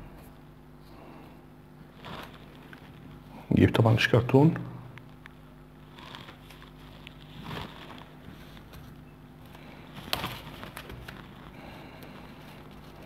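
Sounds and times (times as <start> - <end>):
steady low hum: 0.0 - 13.0
hands handling wires: 1.9 - 3.2, 5.0 - 13.0.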